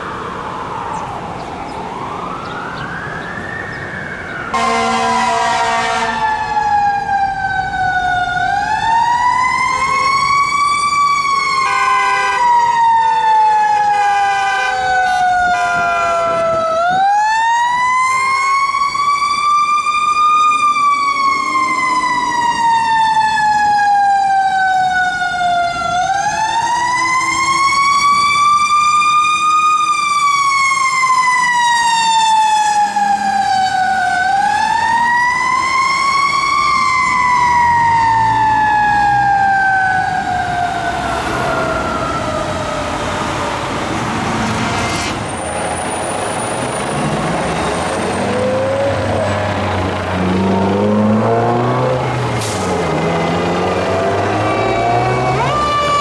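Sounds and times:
fire engine siren wailing: 0:00.0 - 0:56.0
horn blasts: 0:04.5 - 0:06.3, 0:11.6 - 0:12.5, 0:13.8 - 0:16.5.

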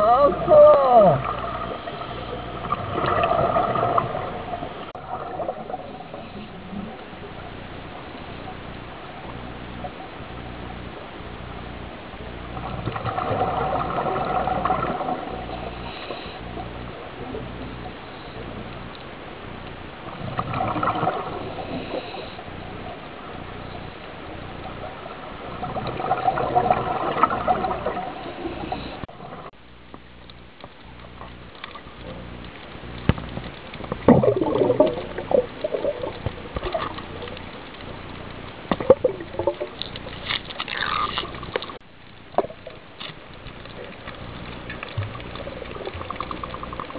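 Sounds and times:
exhaled bubbles gurgling underwater: 0:00.0 - 0:29.6, 0:31.0 - 0:46.9
steady hiss: 0:14.6 - 0:20.4, 0:21.1 - 0:26.0.

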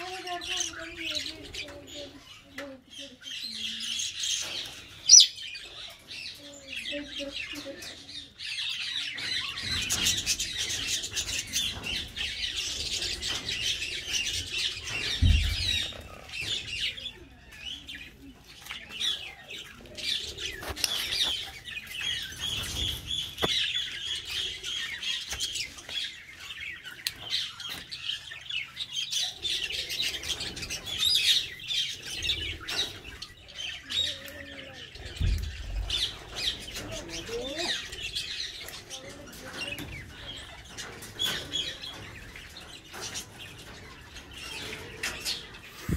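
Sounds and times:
budgerigars chattering and warbling: 0:00.0 - 0:45.9.

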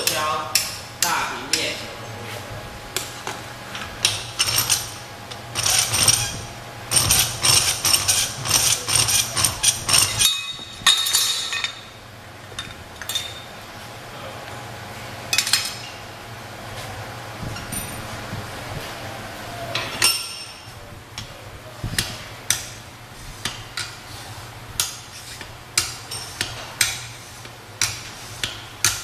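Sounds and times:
file rasping across steel: 0:05.6 - 0:10.3.

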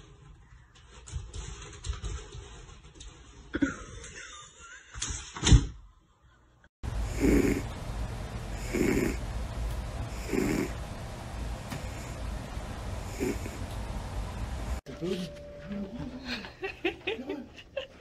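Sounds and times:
cat snoring: 0:07.0 - 0:07.8, 0:08.5 - 0:09.2, 0:10.1 - 0:10.8, 0:13.1 - 0:13.7.

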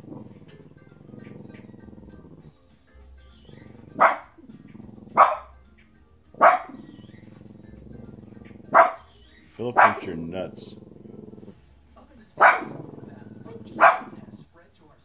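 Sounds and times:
music from a television: 0:00.0 - 0:15.0
dog barking: 0:03.6 - 0:05.6, 0:06.4 - 0:07.4, 0:08.6 - 0:09.1, 0:09.7 - 0:10.3, 0:12.4 - 0:14.4.

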